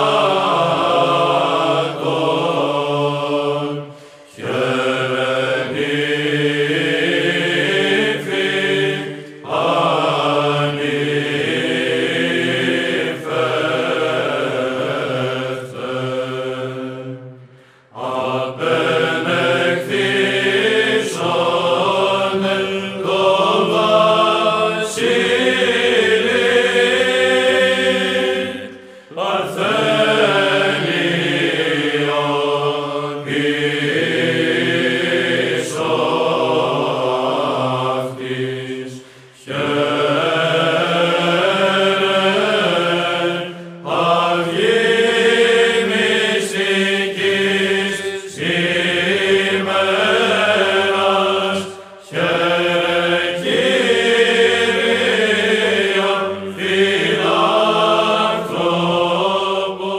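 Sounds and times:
liturgical chant: 0:00.0 - 0:59.9
singer breathing: 0:03.8 - 0:04.4, 0:17.3 - 0:18.0, 0:28.7 - 0:29.2, 0:39.0 - 0:39.5, 0:51.7 - 0:52.0.

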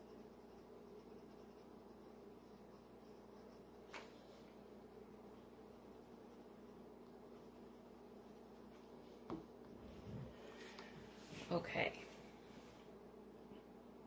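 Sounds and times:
pencil scratching on paper: 0:00.0 - 0:03.8, 0:04.9 - 0:08.8
low room hum: 0:00.0 - 0:14.0.

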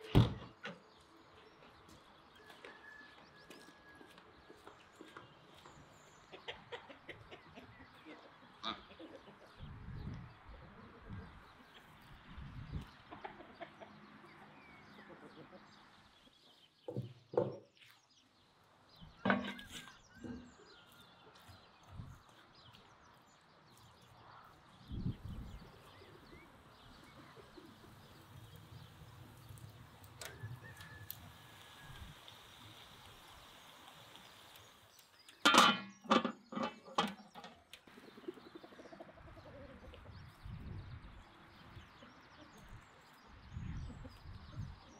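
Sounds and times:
chickens clucking: 0:04.1 - 0:12.1, 0:12.7 - 0:16.3, 0:25.0 - 0:42.8
small birds chirping: 0:04.4 - 0:44.9.

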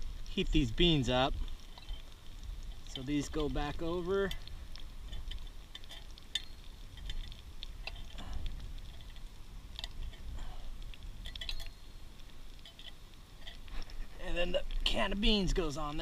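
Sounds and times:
wind rumble on microphone: 0:06.4 - 0:12.6.

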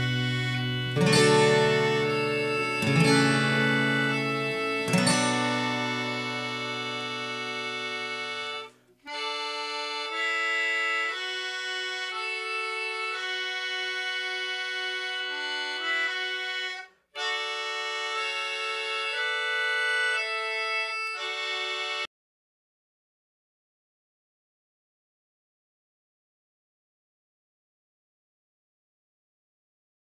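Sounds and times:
slow accordion melody: 0:00.0 - 0:22.1.

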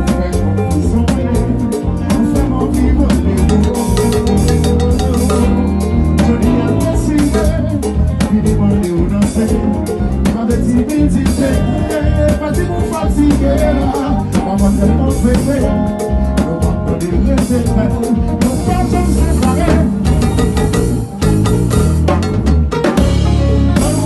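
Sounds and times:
person singing: 0:00.0 - 0:20.5, 0:23.2 - 0:24.0
drums and percussion: 0:00.0 - 0:24.0
live band playing: 0:00.0 - 0:24.0.

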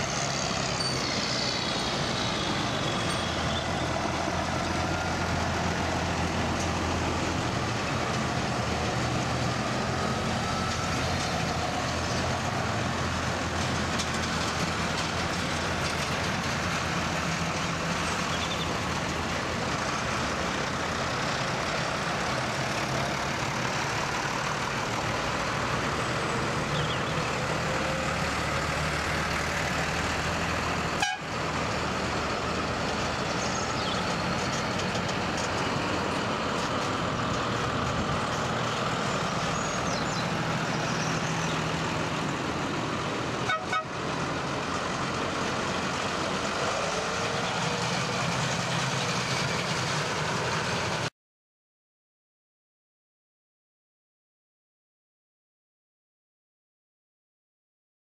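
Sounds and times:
diesel tractors driving past: 0:00.0 - 0:51.1.

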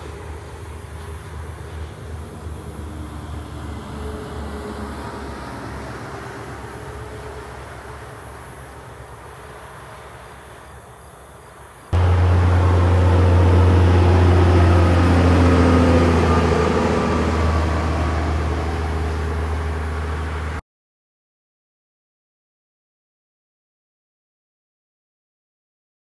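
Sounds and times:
faint traffic noise: 0:00.0 - 0:20.6
truck passing with diesel drone: 0:00.0 - 0:20.6.

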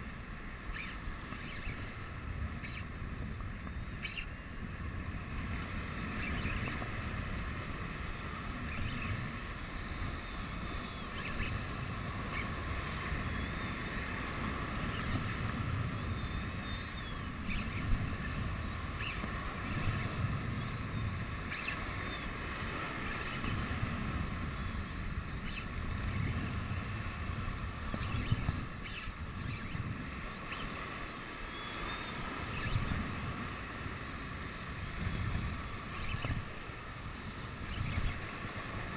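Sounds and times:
wind on microphone: 0:00.0 - 0:38.9
fishing reel whirring: 0:00.6 - 0:03.0, 0:08.4 - 0:15.4, 0:16.0 - 0:27.0, 0:27.6 - 0:33.2, 0:35.8 - 0:36.7
surf washing over rocks: 0:04.4 - 0:38.9.

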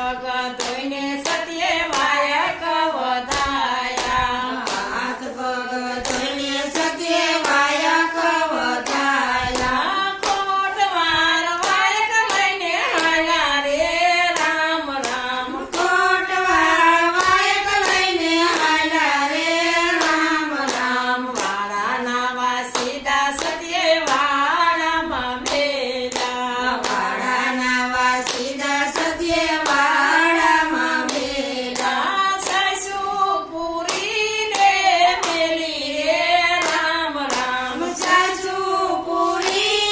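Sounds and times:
hand claps: 0:00.0 - 0:39.9
women singing together: 0:00.0 - 0:39.9.

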